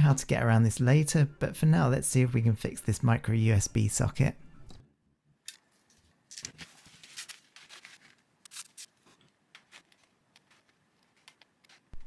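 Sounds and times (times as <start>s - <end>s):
paper towel crinkling: 6.3s - 12.0s.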